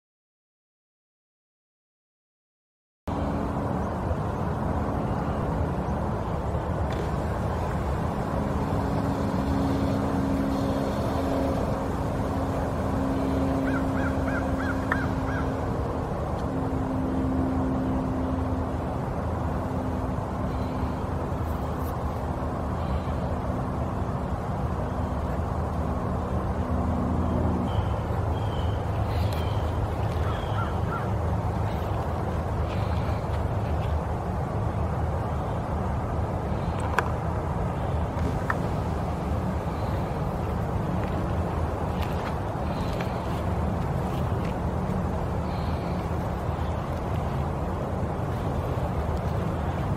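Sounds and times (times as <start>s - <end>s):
steady low hum: 3.1s - 49.9s
birds calling: 7.0s - 15.8s, 27.2s - 33.9s, 37.7s - 49.9s.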